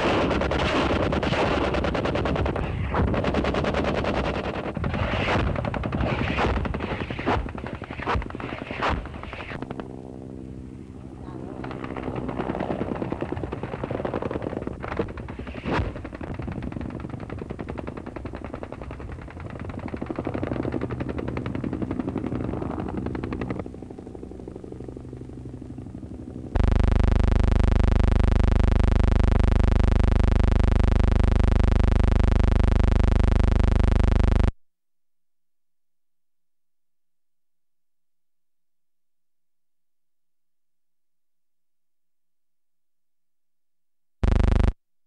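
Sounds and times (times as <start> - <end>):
rapid machine-gun fire: 0.0 - 9.8, 11.6 - 23.7
sharp cracks: 0.0 - 9.9, 11.6 - 21.6
helicopter noise: 0.0 - 34.5
loud steady buzzing tone: 22.1 - 34.6, 44.2 - 44.8.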